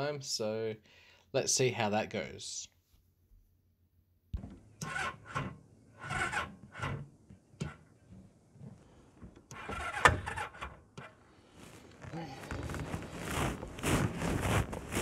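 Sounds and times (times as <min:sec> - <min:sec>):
rubbing and scraping on microphone: 0:11.0 - 0:15.0.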